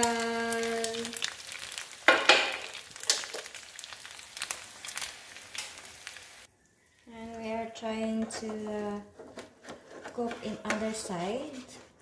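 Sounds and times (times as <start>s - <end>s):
egg sizzling in oil: 0.0s - 6.5s
oil popping and crackling: 0.0s - 6.5s.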